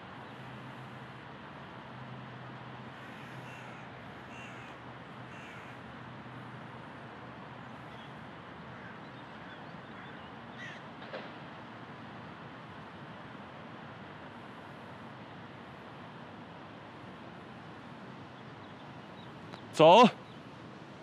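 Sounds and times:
bird calling: 0:03.0 - 0:05.8, 0:07.8 - 0:10.8.

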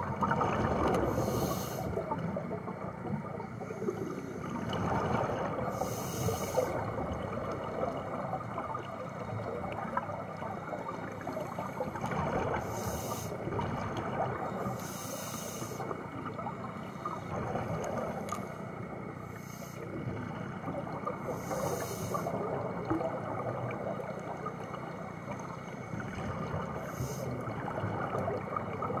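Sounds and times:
crackle of exhaled bubbles: 0:00.0 - 0:29.0
scuba regulator hissing inhalations: 0:01.1 - 0:02.0, 0:05.7 - 0:06.9, 0:12.6 - 0:13.4, 0:14.6 - 0:15.9, 0:19.3 - 0:19.9, 0:21.3 - 0:22.4, 0:26.8 - 0:27.4.

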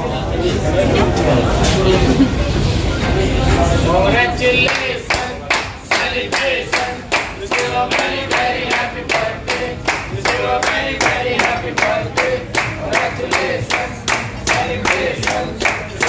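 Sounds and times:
group singing: 0:03.6 - 0:16.0
people clapping in rhythm: 0:04.2 - 0:16.0.

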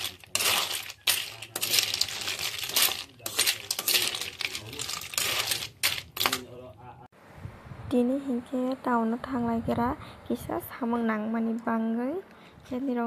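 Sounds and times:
small metal objects clinking: 0:00.0 - 0:06.5.

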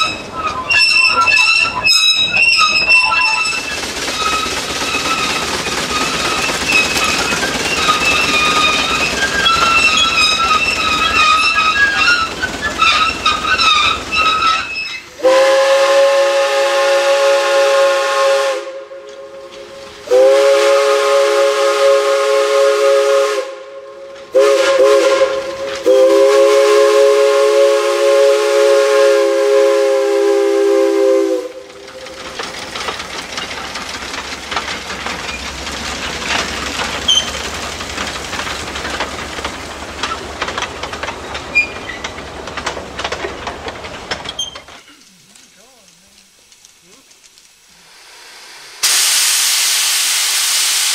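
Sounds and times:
wheels clicking on rails: 0:00.0 - 0:15.3, 0:18.9 - 0:20.2, 0:24.0 - 0:27.2, 0:28.1 - 0:47.8
train rolling past: 0:00.0 - 0:50.9
steam whistle blasts: 0:15.2 - 0:31.7.

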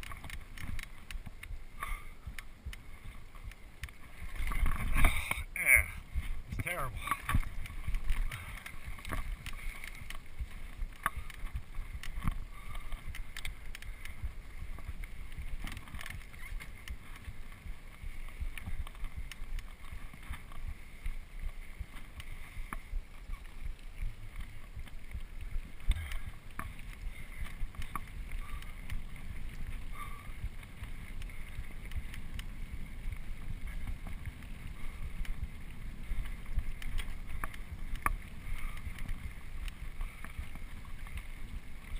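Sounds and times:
bike clicking and rattling: 0:00.0 - 0:41.9
tyres on dirt: 0:00.0 - 0:41.9
wind buffeting microphone: 0:00.0 - 0:41.9.

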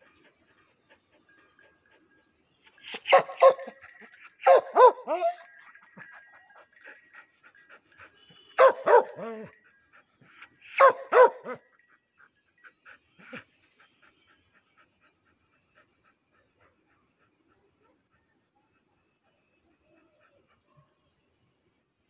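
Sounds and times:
dog panting: 0:00.0 - 0:21.0
dog barking: 0:02.9 - 0:05.7, 0:08.6 - 0:09.6, 0:10.7 - 0:11.6.

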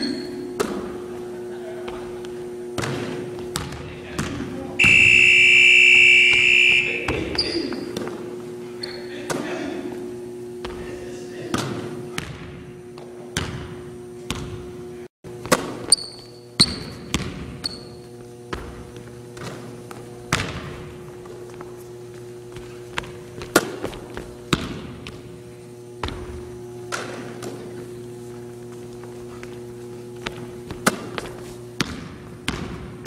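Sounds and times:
sneaker squeaks: 0:00.0 - 0:00.9, 0:02.8 - 0:09.3, 0:15.5 - 0:24.9
steady hum: 0:00.0 - 0:33.0
basketball bouncing on hardwood: 0:16.6 - 0:17.6, 0:31.8 - 0:33.0.

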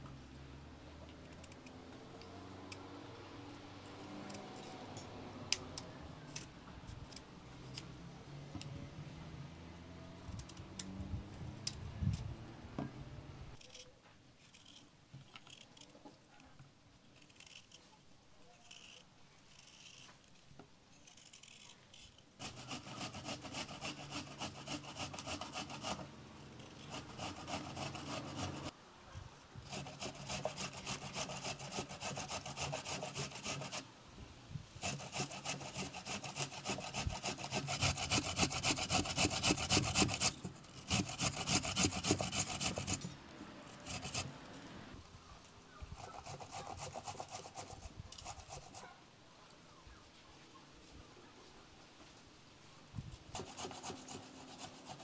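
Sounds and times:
grating on metal grater: 0:22.4 - 0:28.7, 0:29.7 - 0:33.8, 0:34.8 - 0:43.1, 0:43.7 - 0:44.3.

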